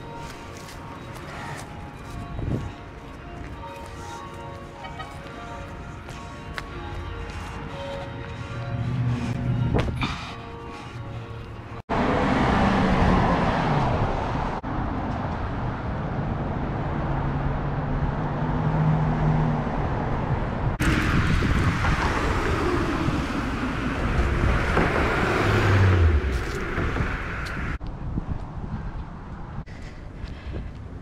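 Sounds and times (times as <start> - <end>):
cars driving past: 6.2 - 27.8.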